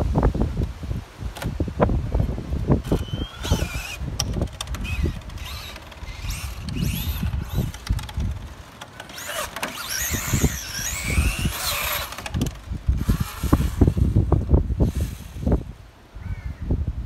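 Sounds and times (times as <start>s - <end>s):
wind noise on microphone: 0.0s - 17.0s
electric motor whining: 2.8s - 15.7s.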